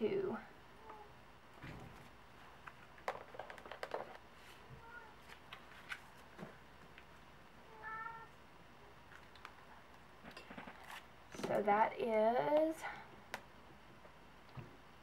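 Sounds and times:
cat meowing: 7.7 - 8.3.

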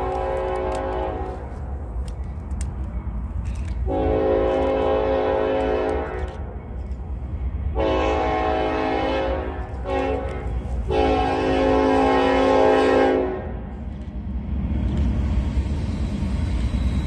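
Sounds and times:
locomotive air horn blasts: 0.0 - 1.5, 3.8 - 6.4, 7.8 - 13.5
low rumble of train: 0.0 - 17.0.

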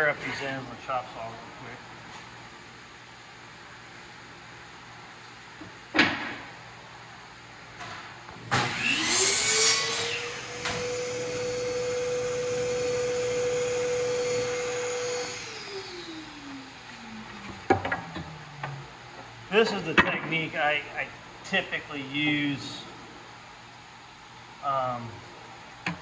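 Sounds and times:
saw motor whine: 8.5 - 19.0.

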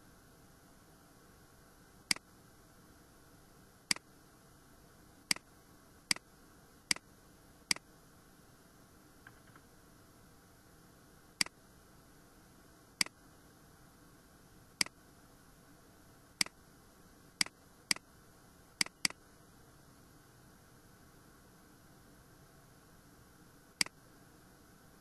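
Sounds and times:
faint steady hiss: 0.0 - 25.0
mouse button clicking: 18.8 - 19.2.

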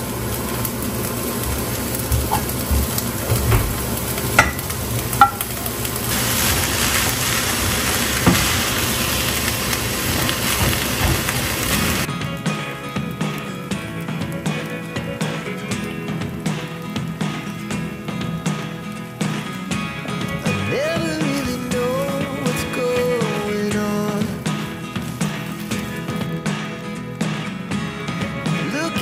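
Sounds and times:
food sizzling in a pan: 0.0 - 29.0
sharp knocks against pan: 4.4 - 5.5.

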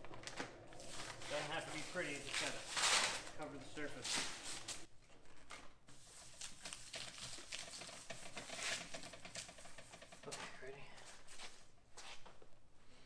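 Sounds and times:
plastic sheet rustling: 0.0 - 4.9, 5.9 - 10.5.

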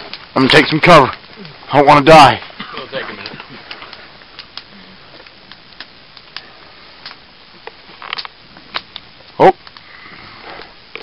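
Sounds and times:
fire crackling and popping: 0.0 - 11.0.

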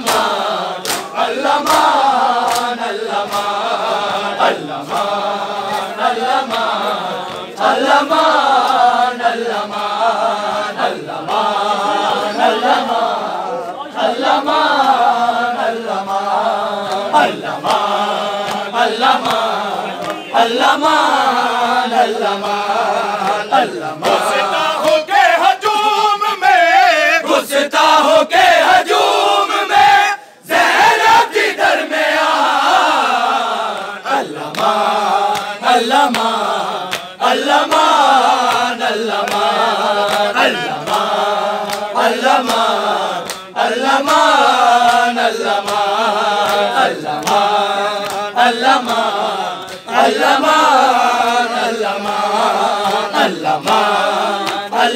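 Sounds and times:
hand slaps on chest: 0.0 - 3.7, 4.8 - 7.5, 16.0 - 20.2, 34.4 - 49.9
men chanting a lament: 0.0 - 54.9.

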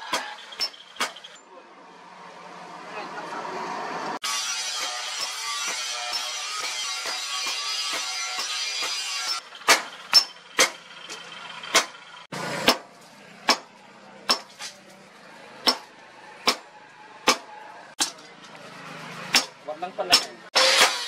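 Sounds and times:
hammer striking metal on anvil: 4.4 - 10.8, 12.6 - 12.9, 15.6 - 18.3.

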